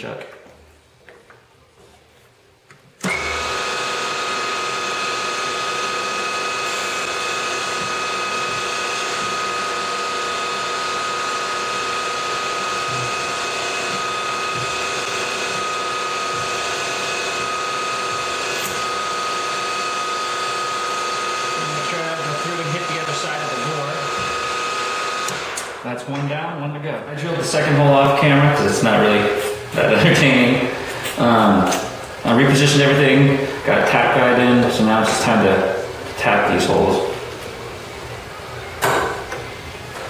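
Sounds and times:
drill bit drilling: 3.0 - 25.8
milling machine spindle whine: 3.0 - 25.8.

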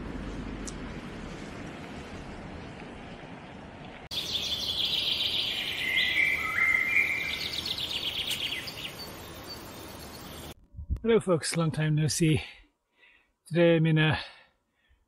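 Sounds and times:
steady outdoor hiss: 0.0 - 14.4
birdsong trills and chirps: 4.1 - 10.6.

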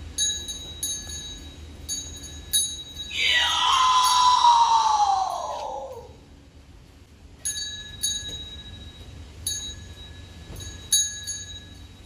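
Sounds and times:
small metal bell struck: 0.2 - 3.1, 7.4 - 12.0.

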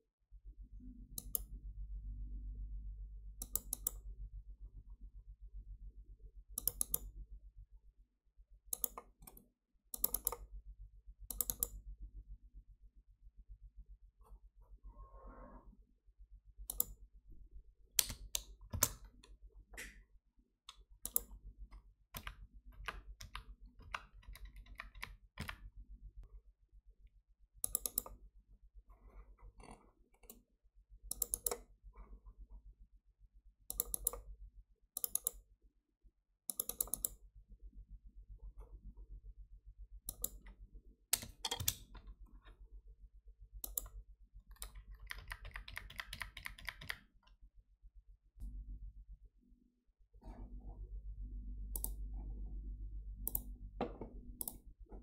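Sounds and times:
low steady hum: 0.3 - 20.1, 47.8 - 55.0
mouse clicks: 1.2 - 1.5, 3.4 - 4.0, 6.6 - 7.1, 8.7 - 10.5, 11.3 - 11.8, 16.7 - 17.0, 20.7 - 21.4, 27.6 - 28.2, 31.1 - 31.7, 33.7 - 34.3, 35.0 - 35.4, 36.5 - 37.2, 40.1 - 40.4, 43.6 - 47.0, 51.7 - 52.1, 53.2 - 53.5, 54.4 - 54.6
computer keyboard keystrokes: 3.4 - 4.0, 6.6 - 7.1, 10.0 - 10.5, 11.3 - 11.8, 18.0 - 19.2, 21.0 - 21.3, 22.2 - 25.7, 27.6 - 28.2, 31.1 - 31.6, 33.7 - 34.3, 36.5 - 37.2, 43.6 - 47.1.

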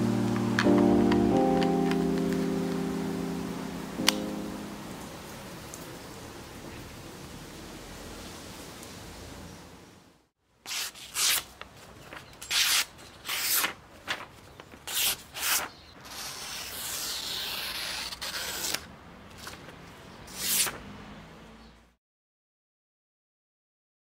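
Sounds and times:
knife slicing paper: 10.7 - 19.7, 20.3 - 20.8.

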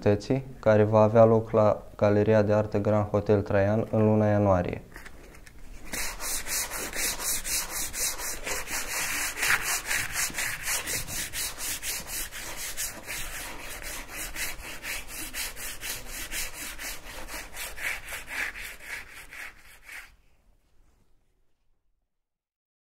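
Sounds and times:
hand sanding strokes: 5.8 - 20.2.

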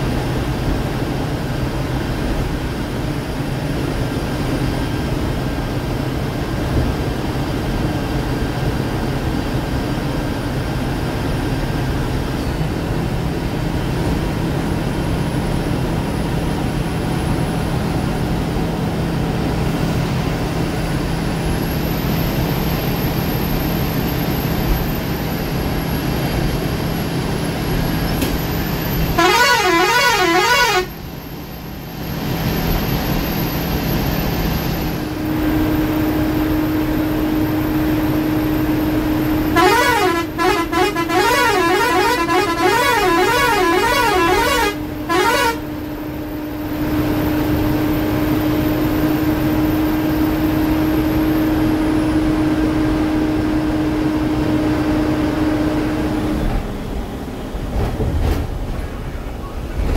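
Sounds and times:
diesel bus engine running: 0.0 - 59.9
road noise: 0.0 - 59.9
warbling horn: 29.1 - 31.0, 39.4 - 45.8.

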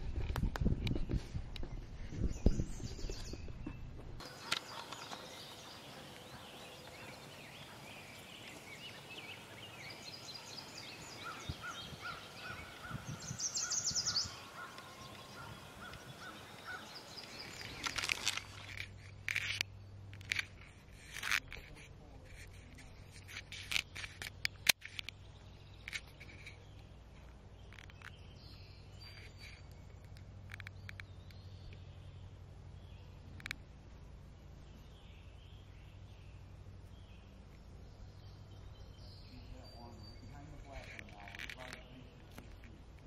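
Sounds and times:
camera handling rumble: 0.0 - 5.2, 17.3 - 25.2
footsteps: 0.0 - 9.2
birds singing and chirping: 0.2 - 43.0.

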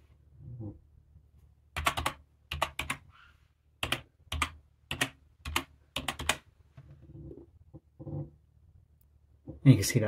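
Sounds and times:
computer keyboard typing: 1.8 - 3.0, 3.8 - 6.4.

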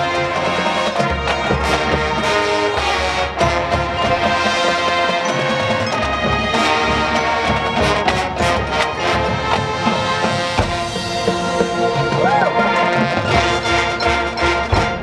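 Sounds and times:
held brass chords: 0.0 - 15.0
sharp percussion hits: 3.4 - 15.0.

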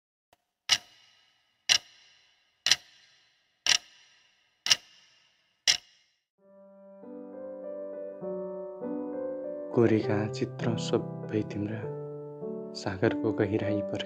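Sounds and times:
clock ticking: 0.7 - 6.0
soft piano music: 6.4 - 14.0.

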